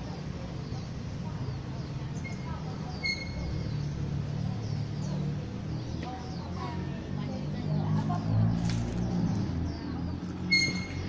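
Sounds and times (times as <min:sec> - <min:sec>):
small birds chirping: 0:00.0 - 0:11.0
traffic rumble: 0:00.0 - 0:11.0
high whistled calls: 0:01.8 - 0:05.2, 0:10.4 - 0:11.0.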